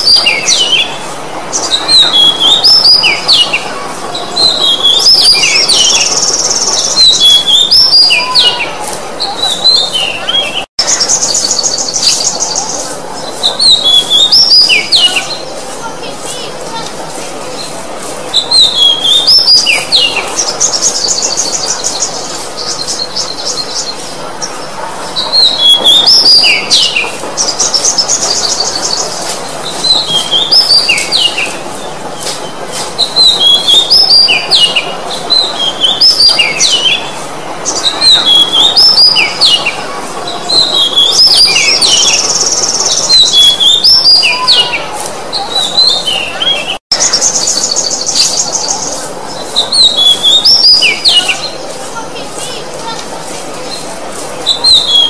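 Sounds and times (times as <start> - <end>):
bird singing whistled phrases: 1.6 - 3.6, 4.4 - 8.7, 13.5 - 15.4, 18.4 - 23.9, 33.0 - 37.1, 37.8 - 39.7, 40.5 - 44.8, 49.6 - 51.6, 54.5 - 55.0.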